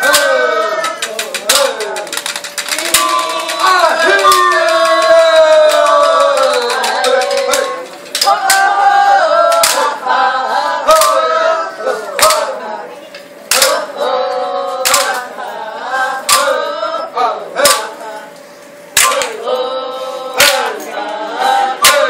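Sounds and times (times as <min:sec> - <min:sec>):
voices singing together: 0:00.0 - 0:22.0
sharp percussive strikes: 0:19.0 - 0:19.3, 0:21.8 - 0:22.0.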